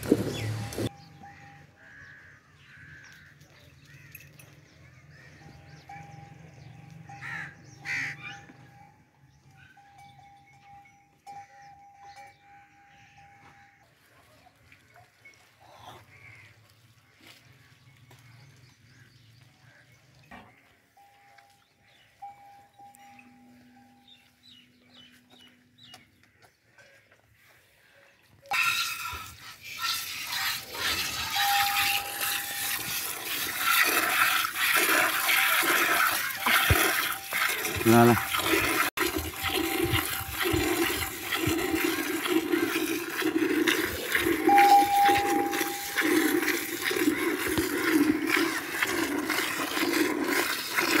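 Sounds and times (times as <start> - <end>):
milk squirting into steel bucket: 28.5 - 51.0.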